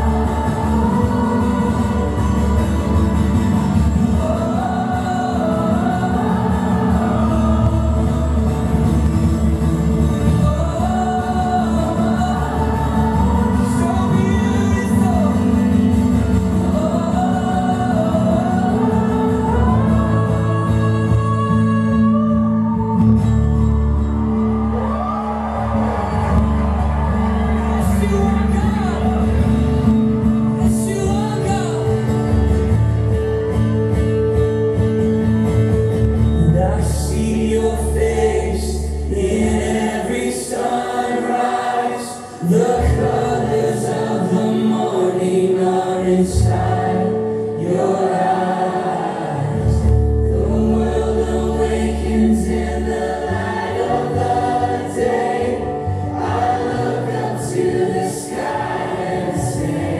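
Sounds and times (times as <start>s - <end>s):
voices singing together: 0.0s - 23.2s, 36.5s - 59.9s.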